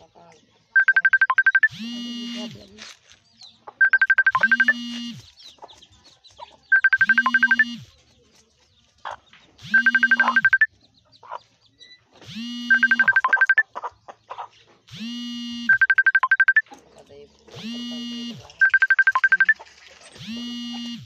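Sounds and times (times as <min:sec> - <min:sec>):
high beeps: 0:00.7 - 0:02.6, 0:03.8 - 0:05.3, 0:06.7 - 0:07.9, 0:09.6 - 0:10.7, 0:12.3 - 0:13.7, 0:15.0 - 0:16.7, 0:17.6 - 0:19.6
electronic ringtone jingle: 0:00.8 - 0:02.5, 0:03.8 - 0:05.2, 0:06.7 - 0:07.8, 0:09.6 - 0:10.7, 0:12.5 - 0:13.7, 0:15.0 - 0:16.6, 0:18.0 - 0:19.6.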